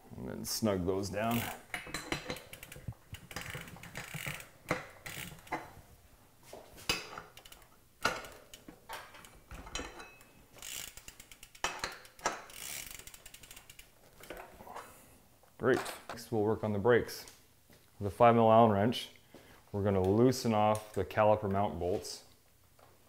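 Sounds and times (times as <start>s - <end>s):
wrench ratchet clicking: 1.3s - 5.6s, 10.6s - 13.9s.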